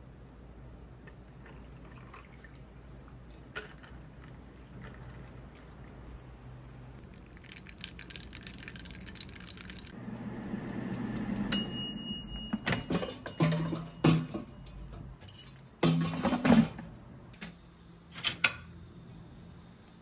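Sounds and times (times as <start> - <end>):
air fryer basket and plate clattering: 10.1 - 16.9.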